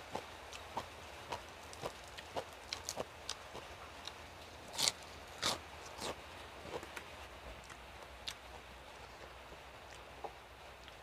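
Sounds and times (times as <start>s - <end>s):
man chewing with wet clicks: 0.0s - 11.0s
food crunches: 4.1s - 7.0s.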